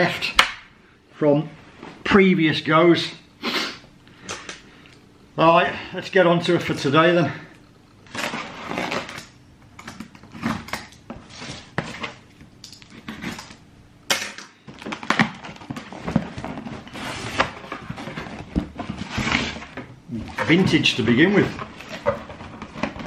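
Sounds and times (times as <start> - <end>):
packaging rustling and crinkling: 8.0 - 13.6, 14.6 - 23.0.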